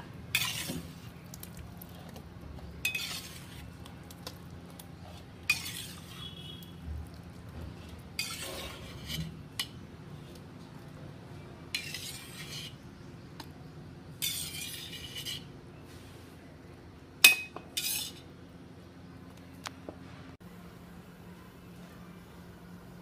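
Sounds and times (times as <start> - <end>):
ladle scraping a steel pan: 0.3 - 1.1, 2.8 - 3.8, 5.0 - 6.6, 8.2 - 9.8, 11.7 - 12.8, 14.2 - 15.5, 17.8 - 18.3.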